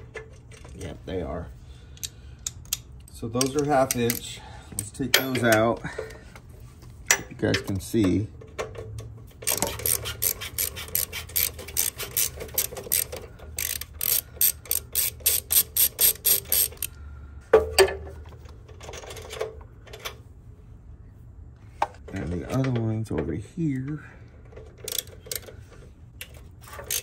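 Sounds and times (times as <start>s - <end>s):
hand ratchet clicking: 1.9s - 5.7s, 9.4s - 17.0s, 24.8s - 25.6s, 26.2s - 27.0s.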